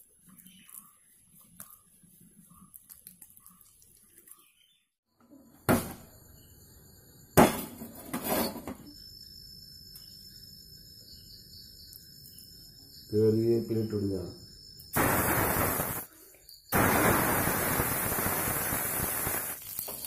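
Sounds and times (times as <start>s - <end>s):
hands rubbing fish: 0.0s - 4.5s
gas burner lighting: 15.0s - 16.1s, 16.8s - 20.0s.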